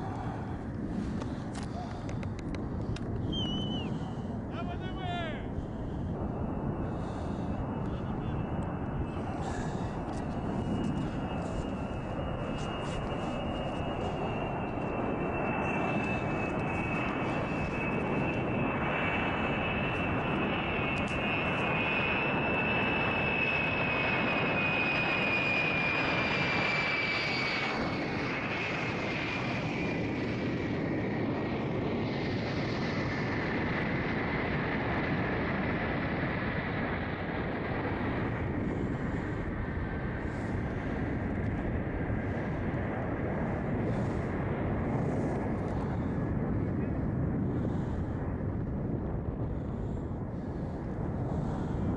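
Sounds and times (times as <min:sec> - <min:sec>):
aircraft engines droning: 0:00.0 - 0:51.9
high whine sinking in pitch: 0:03.1 - 0:28.2.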